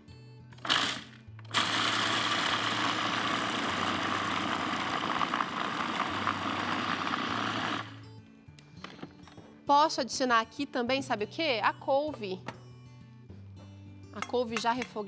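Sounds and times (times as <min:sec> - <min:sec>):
food processor running: 0:00.6 - 0:08.0.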